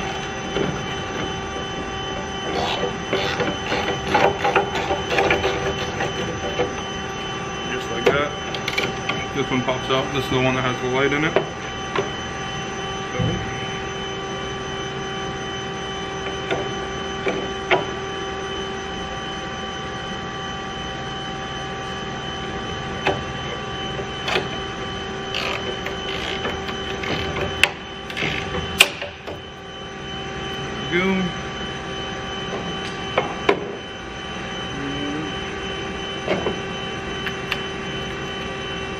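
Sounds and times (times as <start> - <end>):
mechanical hum: 0.0 - 38.9.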